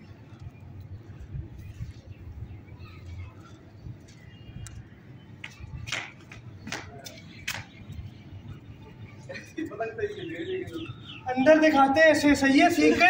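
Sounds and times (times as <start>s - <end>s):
wind rumble on microphone: 0.0s - 5.0s.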